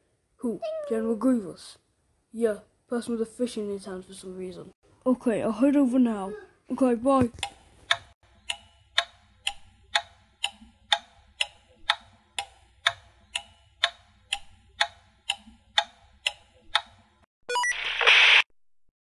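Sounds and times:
clock ticking: 7.3 - 17.3.

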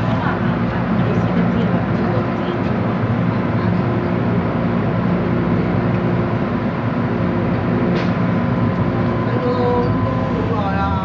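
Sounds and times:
train carriage hum and rumble: 0.0 - 11.0
whining tones of train equipment: 3.9 - 11.0.

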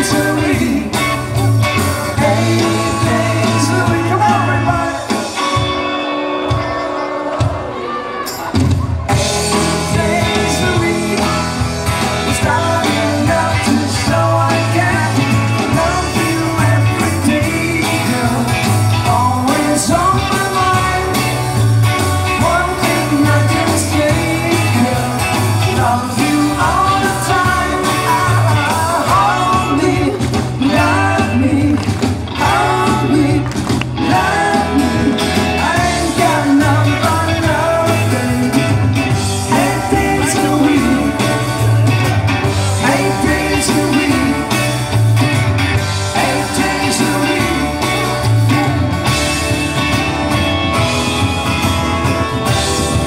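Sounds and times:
person singing: 0.0 - 1.2, 2.1 - 5.7, 9.4 - 41.8, 42.7 - 44.7, 46.1 - 48.9
live rock band: 0.0 - 53.0.

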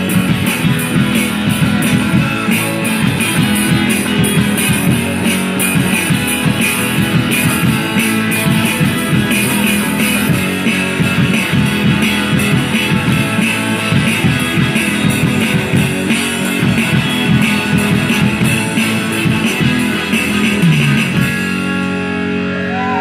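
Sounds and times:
drum kit beat: 0.0 - 22.1
bass guitar: 0.0 - 23.0
electric guitars: 0.0 - 23.0.

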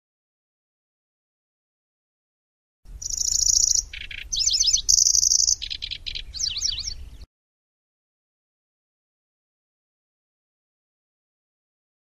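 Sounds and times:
warbler singing: 2.9 - 7.3.

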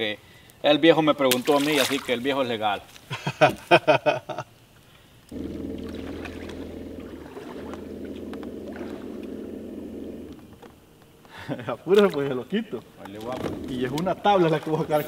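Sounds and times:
electric motor humming: 5.3 - 11.1.

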